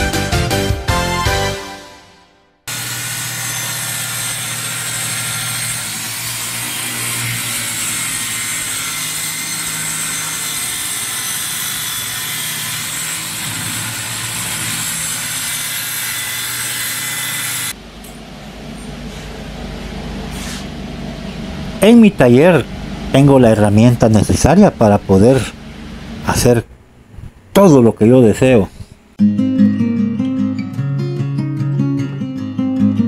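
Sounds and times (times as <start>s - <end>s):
circular saw cutting plywood: 2.7s - 17.8s.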